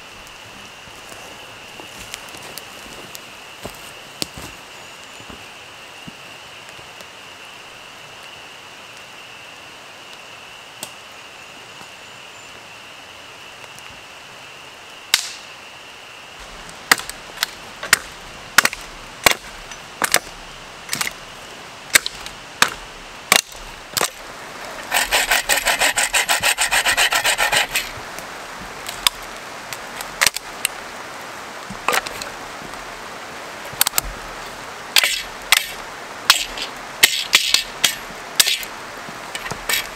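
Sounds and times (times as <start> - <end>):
dry branches snapping and knocking: 15.1 - 15.4, 16.8 - 21.2, 21.9 - 30.8, 31.6 - 32.8, 33.7 - 34.2, 35.0 - 38.7, 39.3 - 39.9
hand saw cutting wood: 24.0 - 28.0, 35.0 - 38.7, 39.4 - 39.9.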